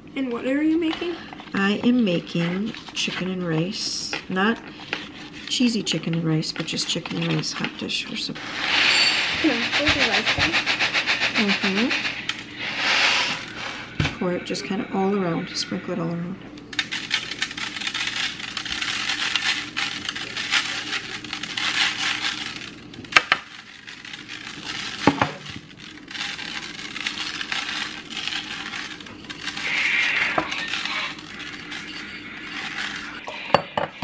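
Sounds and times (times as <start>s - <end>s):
rice grains pattering on metal: 8.8s - 13.6s, 16.7s - 33.2s.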